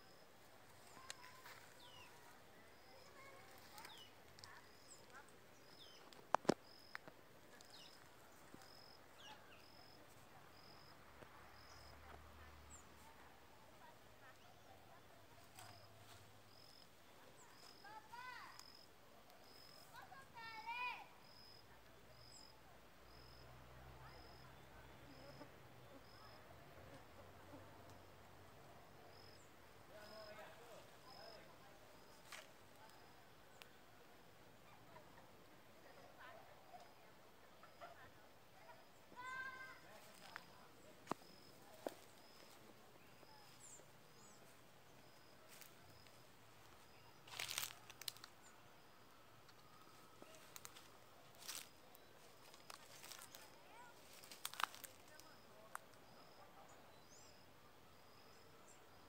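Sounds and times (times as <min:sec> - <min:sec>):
dry vegetation rustling: 0:00.0 - 0:10.8, 0:11.6 - 0:20.8, 0:29.9 - 0:33.7, 0:39.1 - 0:48.5, 0:49.5 - 0:55.9.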